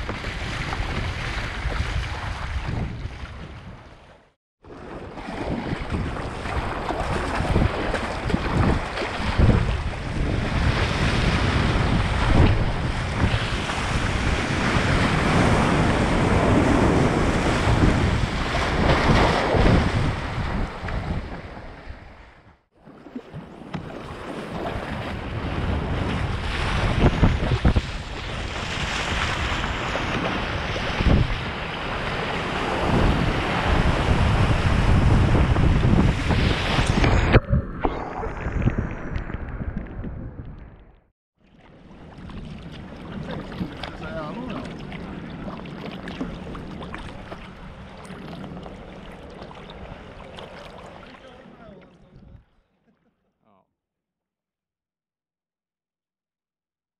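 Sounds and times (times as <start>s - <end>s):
wind buffeting microphone: 0.0s - 4.0s, 5.4s - 22.5s, 24.7s - 41.0s
sea water splashing along hull: 0.0s - 40.7s, 41.4s - 52.7s.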